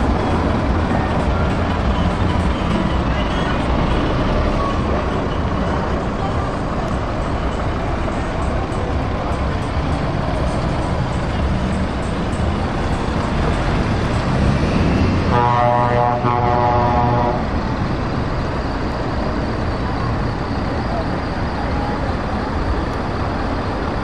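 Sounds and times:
rumble of idling trucks: 0.0 - 24.0
truck diesel engine running: 0.0 - 24.0
truck air horn: 15.2 - 17.5.

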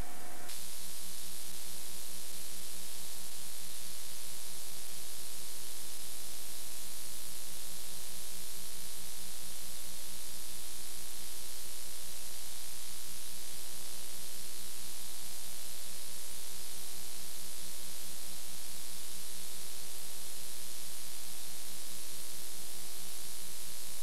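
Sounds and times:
low buzzing hum: 0.0 - 0.6
static hiss: 0.0 - 3.2.

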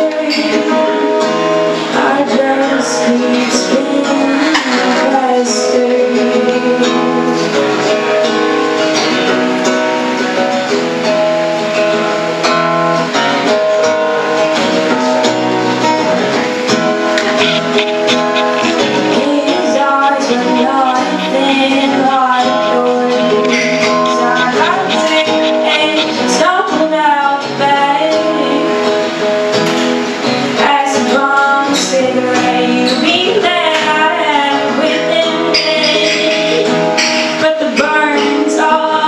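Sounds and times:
women singing: 0.0 - 7.8, 17.3 - 28.9, 30.6 - 39.0
strummed acoustic guitars: 0.0 - 39.0.

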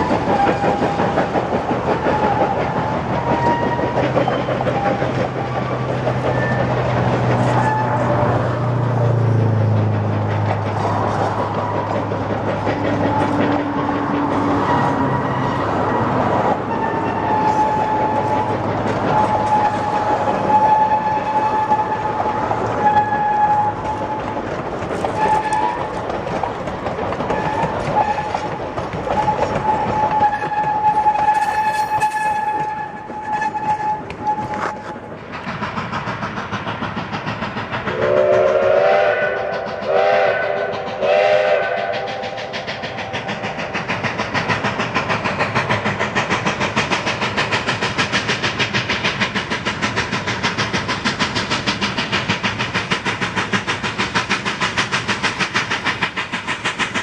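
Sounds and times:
train wheels squealing: 0.0 - 26.4, 27.2 - 57.0
steam locomotive exhaust beat: 0.0 - 57.0
steam whistle blasts: 16.6 - 24.3, 25.1 - 26.0, 27.3 - 28.5, 29.1 - 35.0, 37.9 - 42.5.

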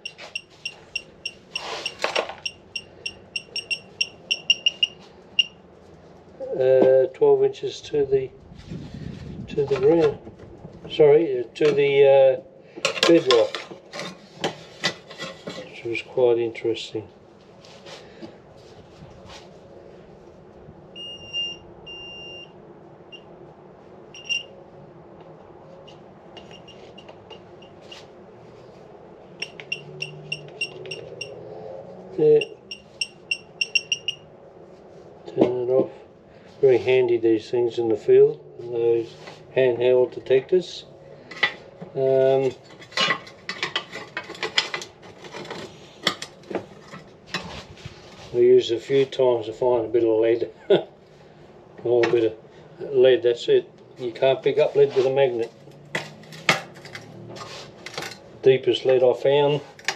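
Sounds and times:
short steady tone: 0.0 - 5.5
metal detector beeping: 0.0 - 5.6, 21.0 - 22.5, 24.2 - 24.5, 29.4 - 31.4, 32.4 - 34.2.

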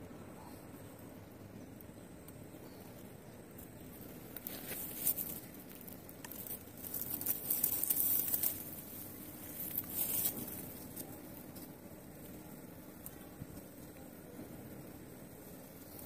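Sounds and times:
rustling and crinkling: 2.6 - 16.0.

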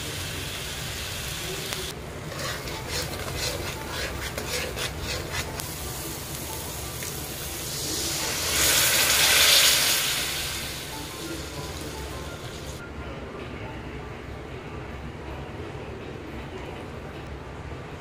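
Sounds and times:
spoon scraping a pan: 2.3 - 5.6
loud sizzling: 5.0 - 12.8.

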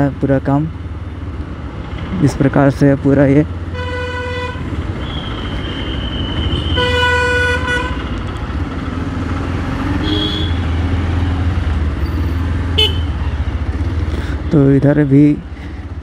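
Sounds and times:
motorcycle engine and road drone: 0.0 - 16.0
vehicle horn honking: 3.7 - 5.3, 6.4 - 8.2, 10.0 - 10.7, 12.8 - 13.2.

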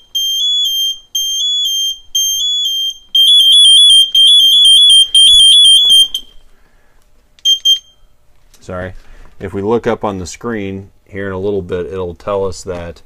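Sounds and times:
two-tone electronic alarm beeping: 0.0 - 6.4, 7.4 - 8.1
short beeps: 7.4 - 8.1.

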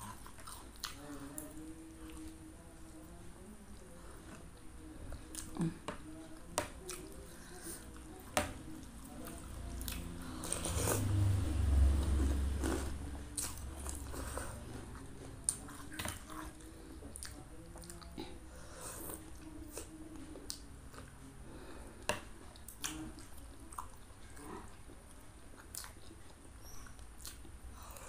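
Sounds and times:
chewing food: 0.0 - 3.2, 4.1 - 28.0.

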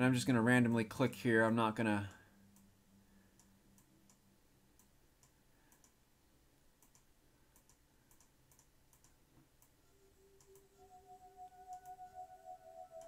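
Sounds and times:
faint mouse clicks: 4.8 - 6.0, 6.8 - 9.8, 10.4 - 10.7.

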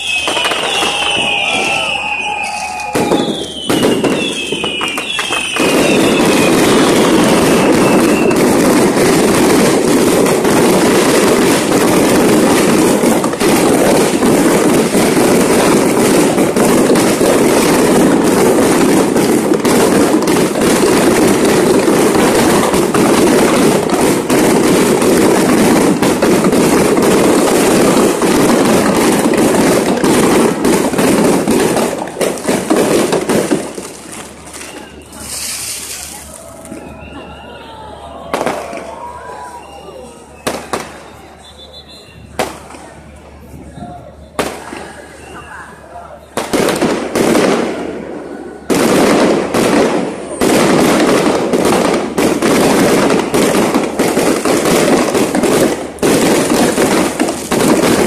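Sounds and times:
rocket whistles: 0.0 - 8.9, 34.4 - 42.6, 44.0 - 45.9
firecrackers crackling: 0.0 - 58.0
firework bangs: 0.0 - 58.0.

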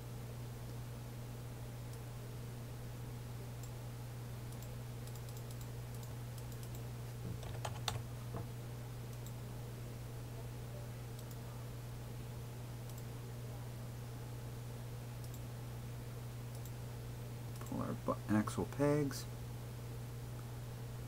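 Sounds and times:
steady low hum: 0.0 - 21.0
computer keyboard keystrokes: 4.5 - 8.5.

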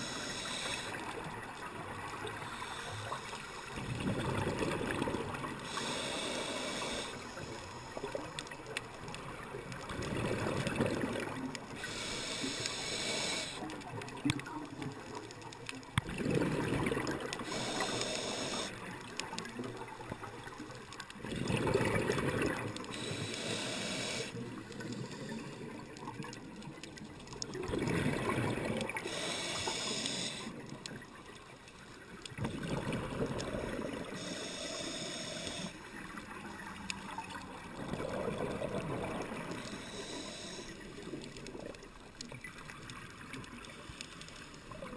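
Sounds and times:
regulator inhale hiss: 0.0 - 1.4, 2.2 - 3.8, 5.5 - 8.5, 11.7 - 13.7, 17.3 - 18.9, 22.8 - 25.8, 29.0 - 30.8, 33.9 - 36.0, 39.3 - 41.1, 43.7 - 44.9
gurgling exhaled bubbles: 3.7 - 6.0, 9.2 - 12.1, 16.0 - 18.7, 21.2 - 26.6, 27.4 - 30.6, 32.3 - 34.3, 35.0 - 43.7.

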